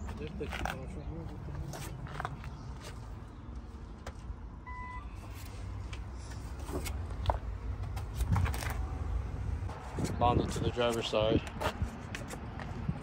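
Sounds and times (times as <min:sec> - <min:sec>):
short beep: 0:04.6 - 0:05.2.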